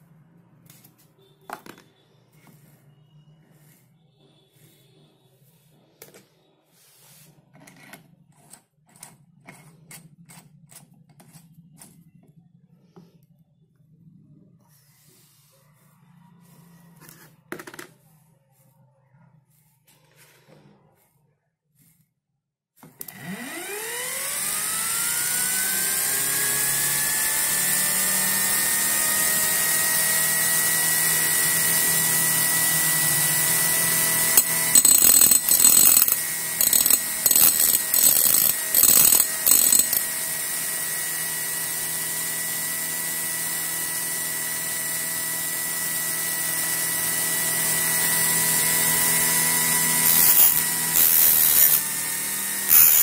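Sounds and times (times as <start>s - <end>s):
blender motor whining: 23.0s - 28.7s, 33.4s - 45.1s, 47.9s - 53.0s.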